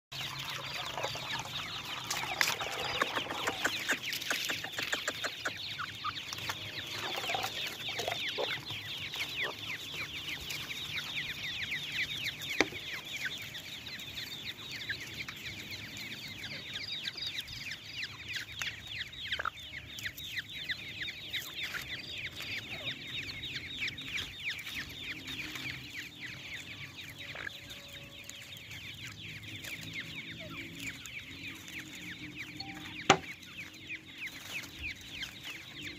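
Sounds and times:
chicks peeping: 0.1s - 35.9s
sharp tap: 33.1s - 33.3s.

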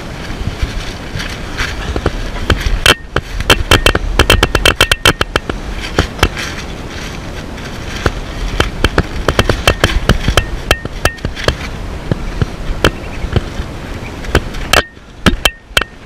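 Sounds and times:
rustling of insulation: 0.0s - 16.0s
clicks and knocks on wood: 1.2s - 6.6s, 7.9s - 13.6s, 14.2s - 16.0s.

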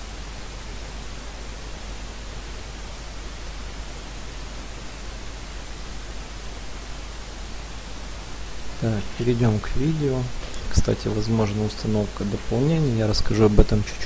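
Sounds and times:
low hum: 0.0s - 14.0s
steady hiss: 0.0s - 14.0s.

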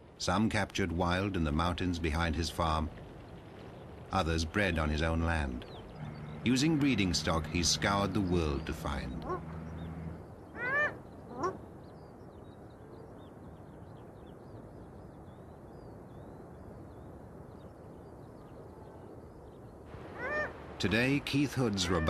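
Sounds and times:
faint outdoor hiss: 0.0s - 22.0s
harsh animal calls: 9.0s - 11.7s, 20.0s - 20.6s, 21.7s - 22.0s.

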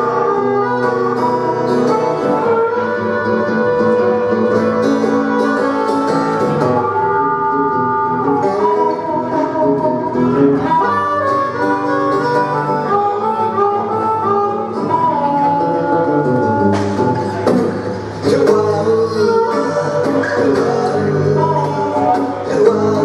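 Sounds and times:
acoustic guitar strumming: 0.0s - 23.0s
harmonica melody: 0.0s - 23.0s.

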